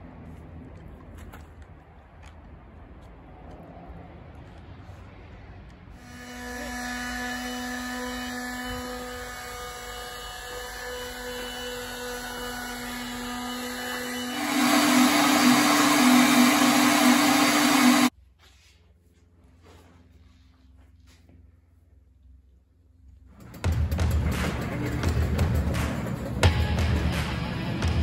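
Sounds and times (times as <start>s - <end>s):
power tool whining on wood: 6.0s - 18.1s.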